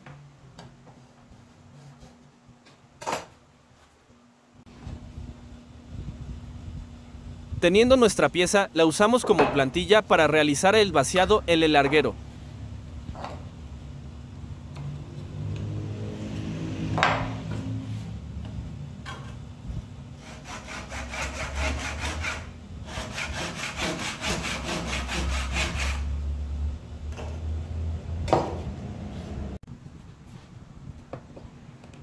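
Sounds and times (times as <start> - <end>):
hand saw cutting wood: 20.2 - 26.2.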